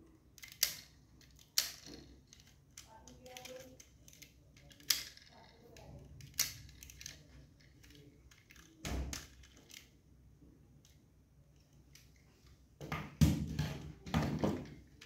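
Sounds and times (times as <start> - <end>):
sharp clicks of model handling: 0.4 - 5.3.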